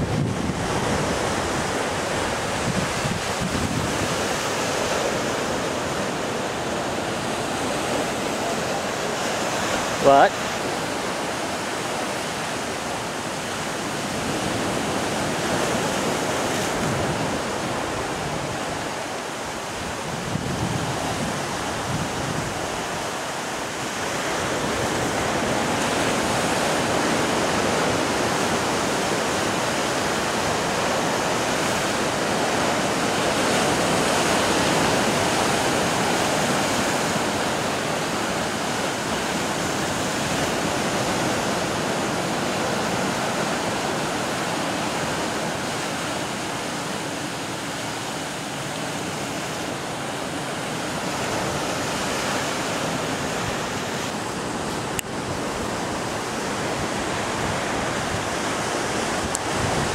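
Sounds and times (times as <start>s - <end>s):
surf breaking on rocky shore: 0.0s - 59.9s.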